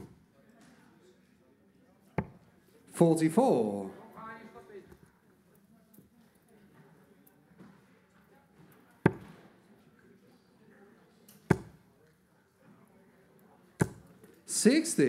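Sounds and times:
darts hitting dartboard: 9.1 - 9.5, 11.5 - 11.8, 13.8 - 14.1.

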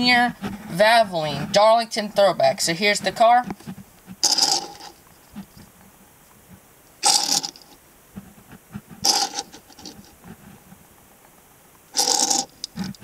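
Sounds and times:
toy car scraping on tabletop: 4.2 - 5.0, 9.0 - 10.1, 12.0 - 13.0.

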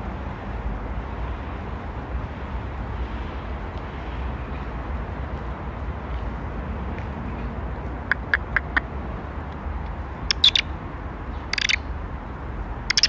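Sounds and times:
high chirping animal calls: 10.3 - 10.7, 11.5 - 11.9.

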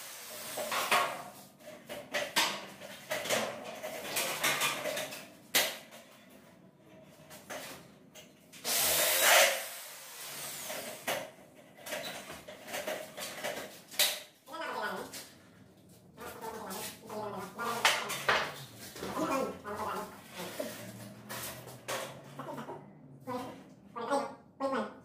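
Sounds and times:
power drill driving screw into metal: 8.6 - 10.9.

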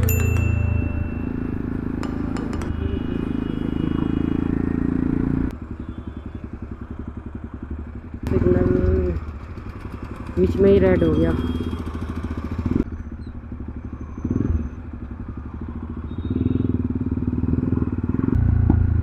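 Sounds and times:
motorcycle engine running: 0.0 - 19.0
road and wind noise: 0.0 - 19.0.

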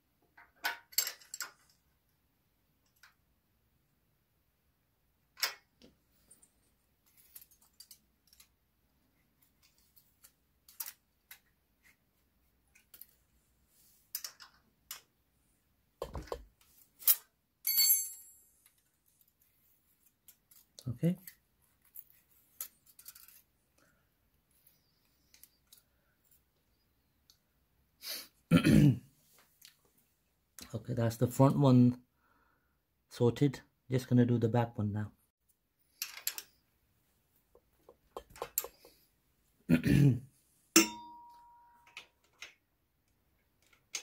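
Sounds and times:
clinks of small steel spanners: 17.0 - 18.9, 40.8 - 42.1
short ringing clink of metal: 40.8 - 41.9.

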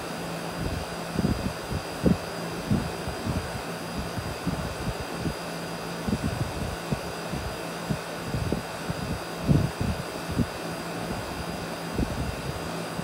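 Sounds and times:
air conditioner unit humming: 0.0 - 13.0
wind buffeting on microphone: 0.6 - 5.4, 6.0 - 12.6.

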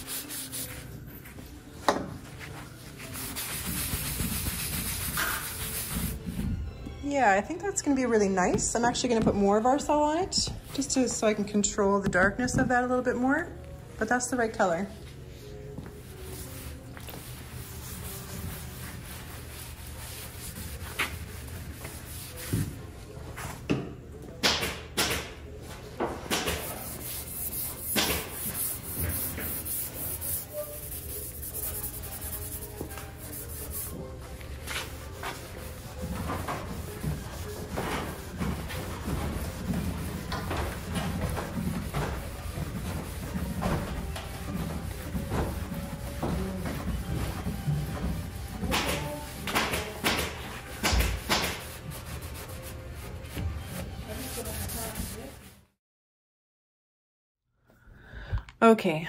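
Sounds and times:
rag rubbing on wood: 3.0 - 6.2, 26.6 - 34.0, 34.7 - 55.6.

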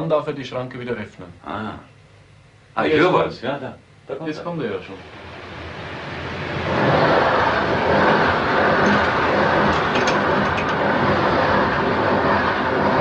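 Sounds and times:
passenger train passing: 4.6 - 13.0.

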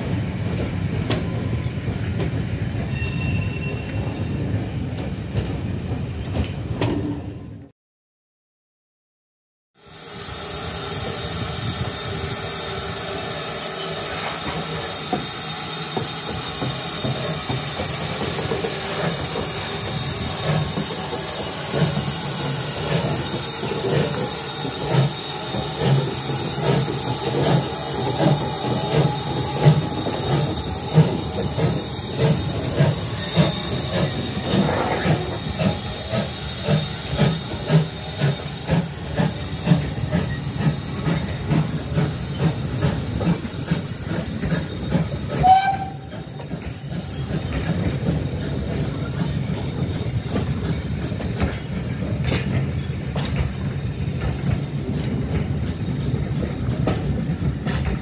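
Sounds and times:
steam hissing from locomotive: 9.8 - 58.0
steam locomotive exhaust chuffs: 9.8 - 58.0.

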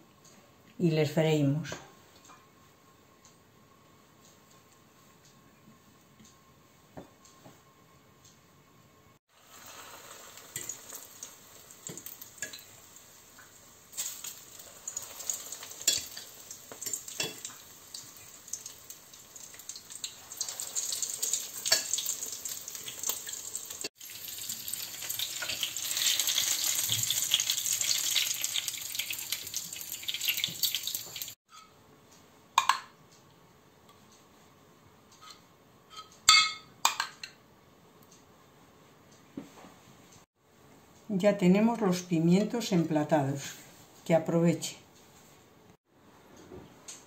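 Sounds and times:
peppers sizzling in hot oil: 9.3 - 31.6.

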